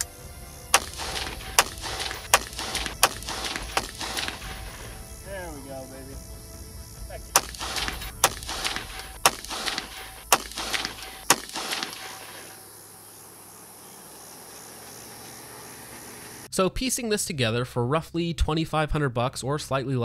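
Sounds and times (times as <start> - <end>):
outdoor background noise: 0.0 - 17.3
rifle shots with echo: 0.7 - 5.2, 7.3 - 12.6.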